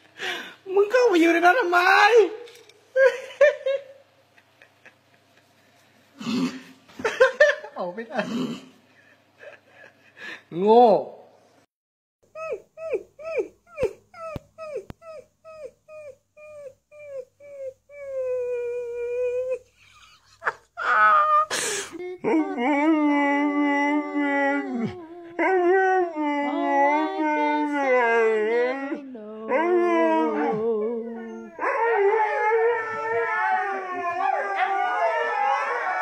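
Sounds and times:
husky howling and talking: 22.2s - 36.0s
puppy howling: 22.2s - 36.0s.

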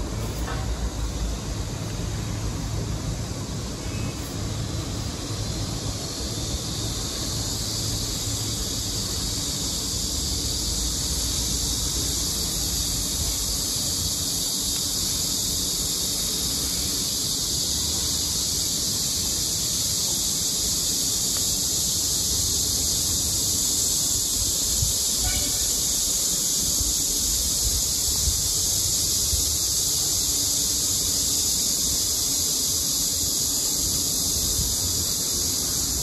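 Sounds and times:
insects buzzing: 0.0s - 36.0s.

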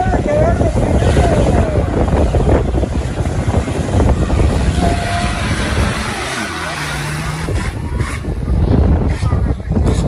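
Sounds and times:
indistinct voices: 0.0s - 10.0s
race vehicle engines rumbling: 0.0s - 10.0s.

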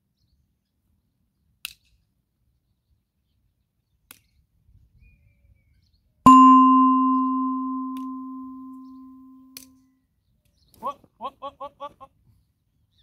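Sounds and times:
notification bell ding: 6.3s - 9.3s.

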